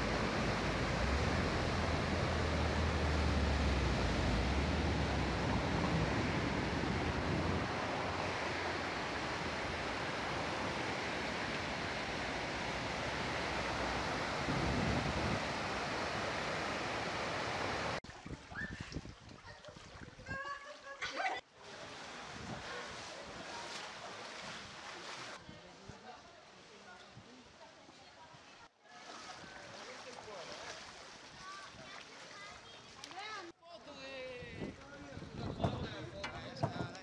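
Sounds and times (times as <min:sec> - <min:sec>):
deep rumble: 0:00.0 - 0:10.4
river torrent rushing: 0:00.0 - 0:18.0.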